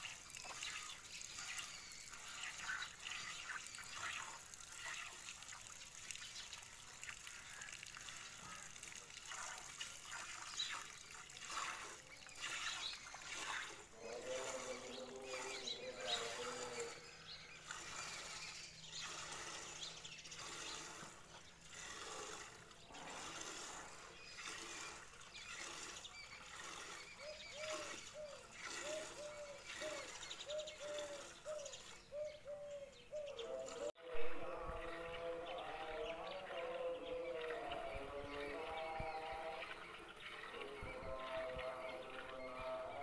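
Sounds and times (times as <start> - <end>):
milk squirting into steel bucket: 0.0 - 32.0.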